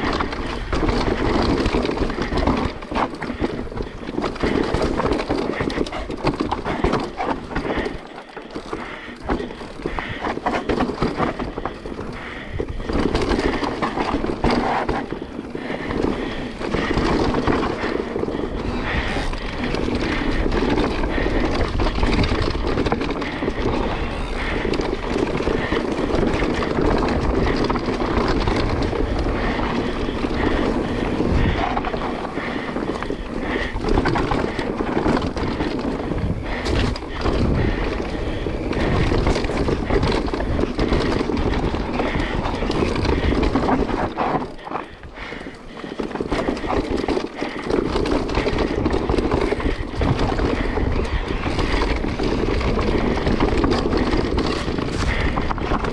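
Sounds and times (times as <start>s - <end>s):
bike knocks and rattles: 0.0s - 55.9s
bike tyre rumble: 0.0s - 55.9s
wind rush on microphone: 0.0s - 55.9s.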